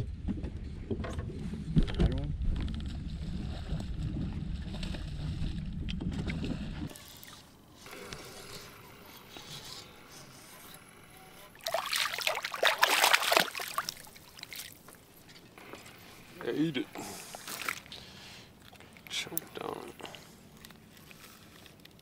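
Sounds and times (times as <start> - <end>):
wind rumbling on microphone: 0.0 - 6.9
fish thrashing and splashing: 11.6 - 15.5, 17.2 - 19.1.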